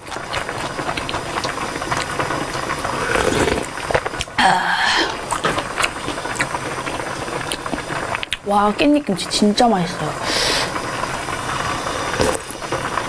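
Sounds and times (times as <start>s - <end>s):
close chewing and wet mouth sounds: 0.0s - 4.4s, 5.3s - 8.5s.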